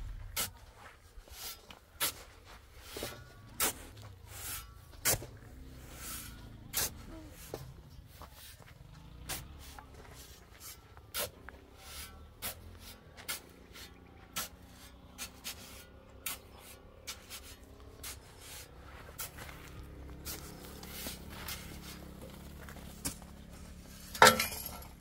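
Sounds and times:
short scraping strokes: 2.8 - 7.1, 9.3 - 22.3.

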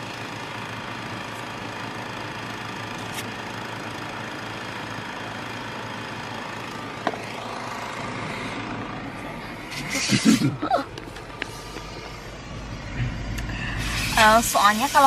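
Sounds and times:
engines idling: 0.0 - 15.0
air hissing from tyres: 11.3 - 15.0.

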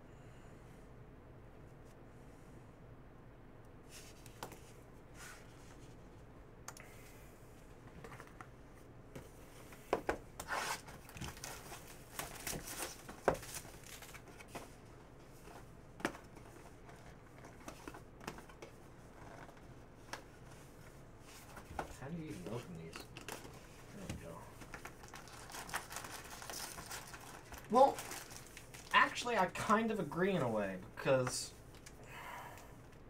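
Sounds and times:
plastic wrap crinkling and tearing: 10.5 - 14.5, 24.6 - 29.7.

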